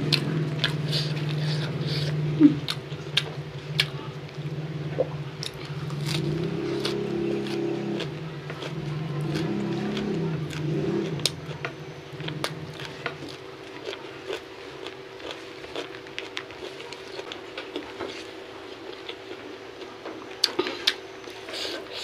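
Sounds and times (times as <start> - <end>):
open-mouthed chewing and lip-smacks: 0.0 - 4.4
low engine hum: 0.0 - 14.7.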